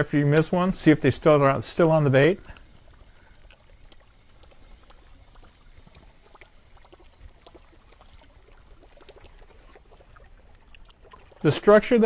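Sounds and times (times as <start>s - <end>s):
lake water lapping: 0.2s - 12.0s.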